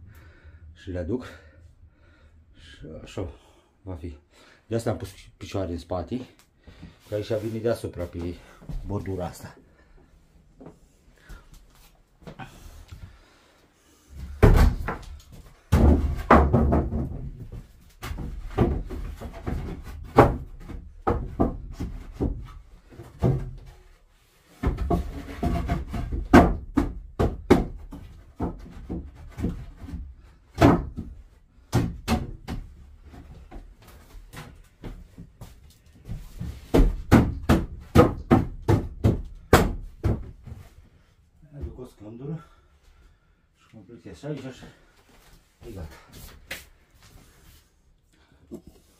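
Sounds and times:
boards dropping with thuds: 14.2s - 23.9s, 24.5s - 40.7s
wooden boards knocking and clattering: 14.2s - 40.7s.

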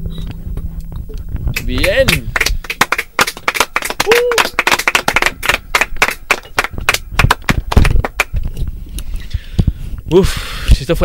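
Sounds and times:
crowd cheering: 1.6s - 7.9s
hands clapping in applause: 1.6s - 8.4s.

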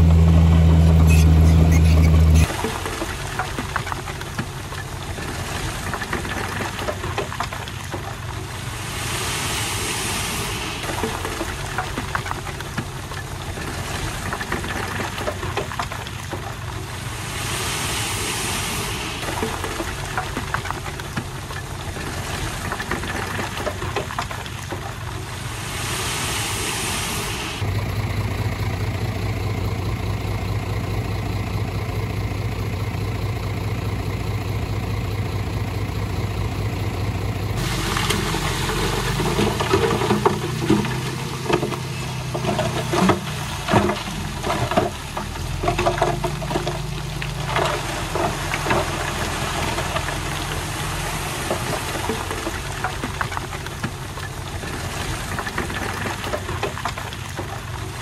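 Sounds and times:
diesel engine droning: 0.0s - 58.0s
clanking and rattling knocks: 39.0s - 50.2s.

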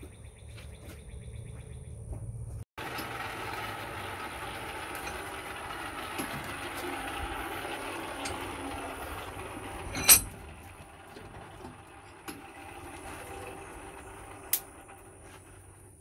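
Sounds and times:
metal bar clanking into vise: 9.8s - 10.6s.

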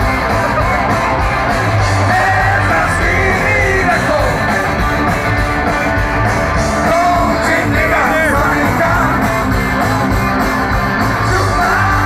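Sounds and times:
live rock band playing: 0.0s - 12.0s
person singing: 1.9s - 4.6s, 11.2s - 12.0s.

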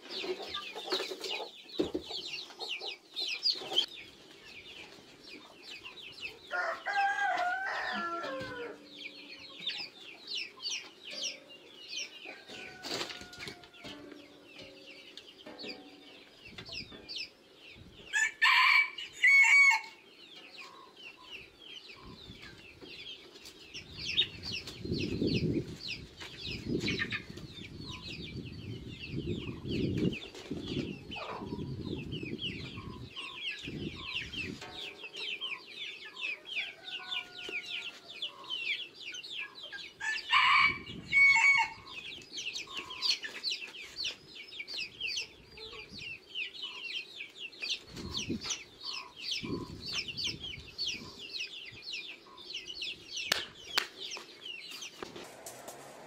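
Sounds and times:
high-pitched chick peeping: 0.0s - 55.6s
chickens clucking: 0.0s - 56.0s
rooster crowing: 6.5s - 8.8s, 18.1s - 20.0s, 40.0s - 41.8s.

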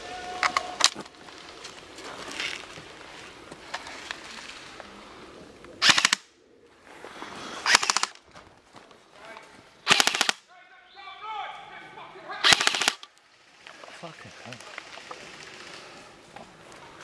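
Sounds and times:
airsoft rifle full-auto bursts: 5.8s - 6.2s, 7.7s - 8.2s, 9.8s - 10.4s, 12.4s - 13.1s.

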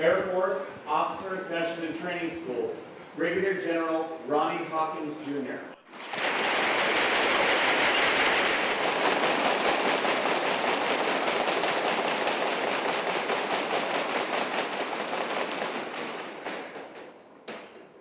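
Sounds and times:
audience applauding: 5.9s - 16.8s.

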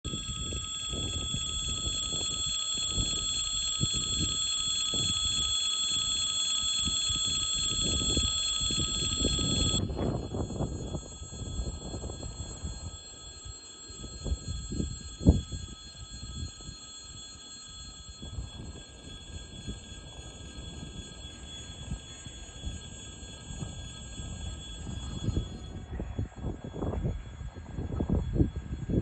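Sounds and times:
level-crossing warning bell ringing: 0.0s - 29.0s
wind buffeting the microphone: 6.8s - 13.0s, 18.2s - 29.0s.

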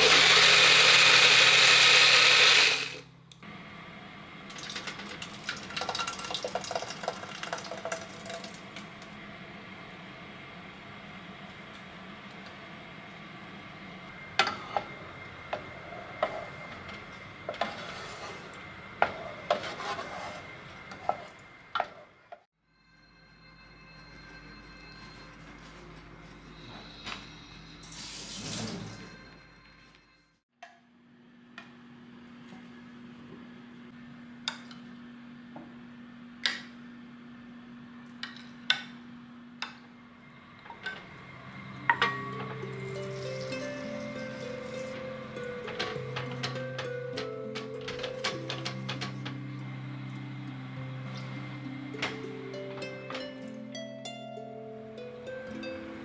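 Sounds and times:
music: 22.6s - 27.9s, 41.3s - 56.0s.

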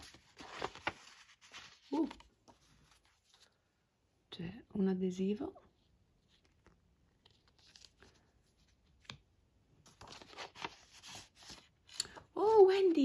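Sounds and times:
paper rustling and scraping: 0.0s - 3.5s, 9.8s - 12.0s.

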